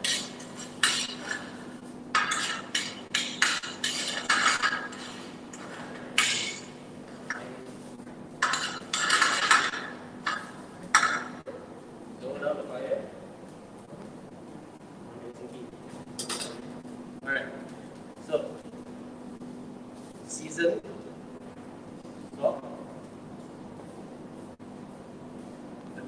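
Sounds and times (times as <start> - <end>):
metal spoon scraping a pan: 0.0 - 1.6, 2.2 - 6.7.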